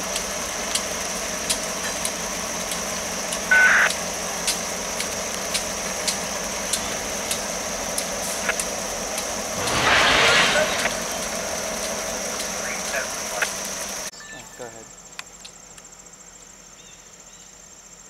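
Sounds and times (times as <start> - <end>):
diesel locomotive engine hum: 0.0 - 16.7
sharp squeal: 9.6 - 11.2.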